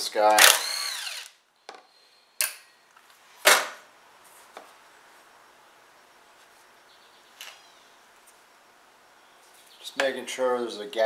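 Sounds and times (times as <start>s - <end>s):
power driver running: 0.3s - 1.3s.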